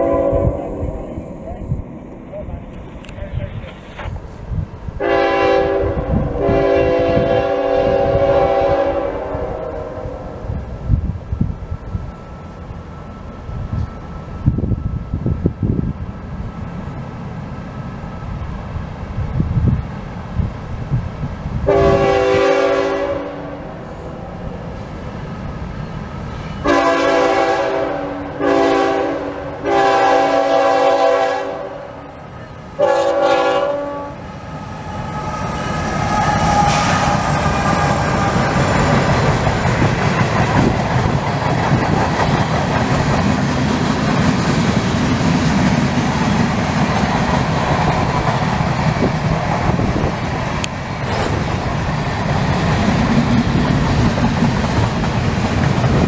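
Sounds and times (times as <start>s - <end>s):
locomotive air horn blasts: 0.0s - 0.8s, 5.0s - 10.2s, 21.7s - 23.8s, 26.6s - 32.1s, 32.8s - 34.2s, 35.6s - 37.2s
freight train rumbling past: 0.0s - 56.0s.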